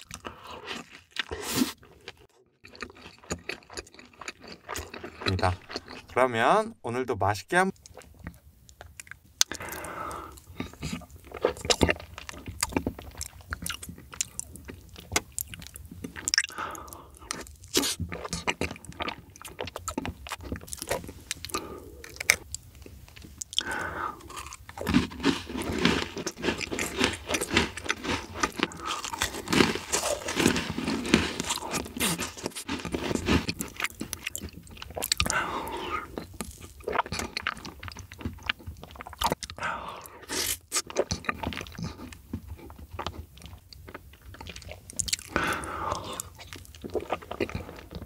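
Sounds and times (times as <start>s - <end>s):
wet chewing with mouth clicks: 0.0s - 6.2s, 7.7s - 48.0s.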